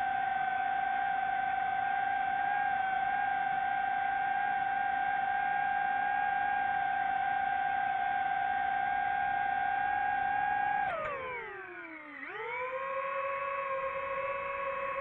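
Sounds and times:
drone motors whining: 0:05.3 - 0:15.0.

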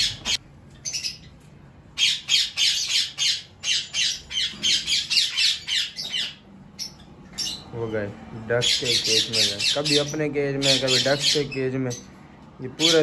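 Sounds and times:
shrill bird squawks: 0:00.0 - 0:01.3, 0:02.0 - 0:07.6.

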